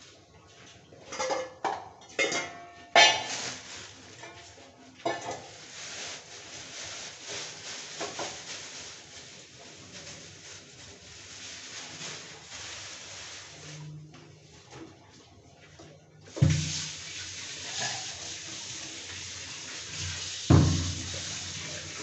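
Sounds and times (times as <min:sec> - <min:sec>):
metal kitchen utensils clanking: 0:01.0 - 0:05.6
steady hiss: 0:16.4 - 0:22.0.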